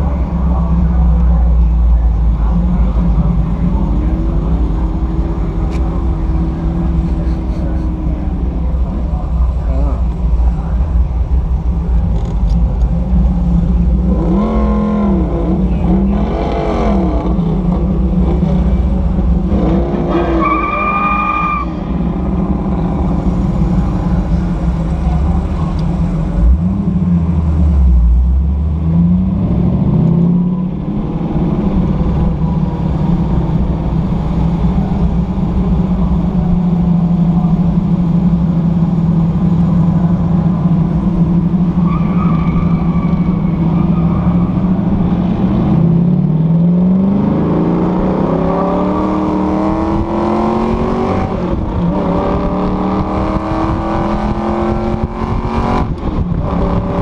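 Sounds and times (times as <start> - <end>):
car engine running from inside: 0.0 - 19.6, 21.8 - 57.0.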